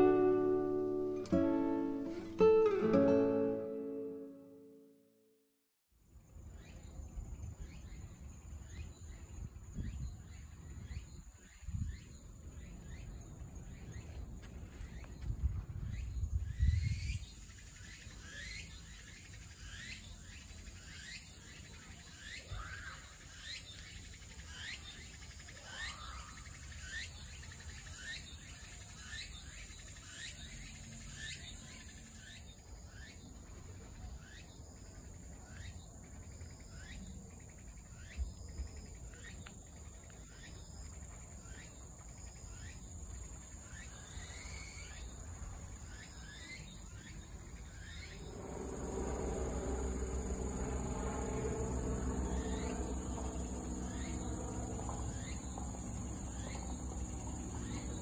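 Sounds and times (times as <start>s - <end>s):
insects chirping: 6.3s - 58.0s
steady high insect buzz: 42.5s - 58.0s
faint low rumble: 47.9s - 58.0s.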